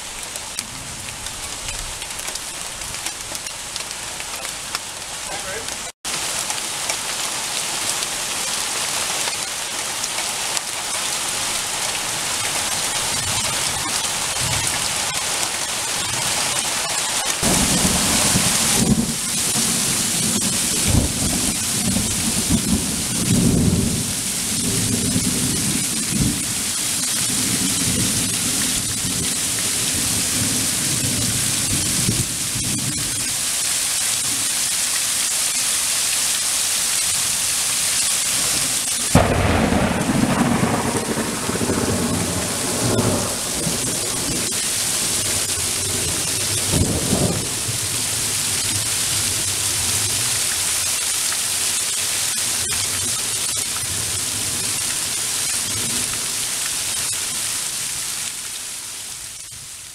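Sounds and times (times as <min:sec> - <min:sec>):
heavy rain pouring: 0:00.0 - 0:59.9
thunder rumbling: 0:12.4 - 0:33.3, 0:39.1 - 0:50.2.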